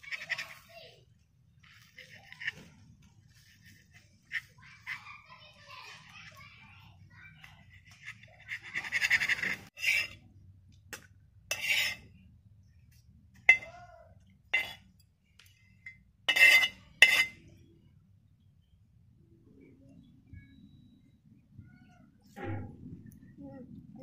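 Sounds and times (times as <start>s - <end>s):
knife scraping on metal plates: 7.7s - 10.2s, 11.5s - 12.1s, 14.5s - 14.9s, 16.3s - 17.5s.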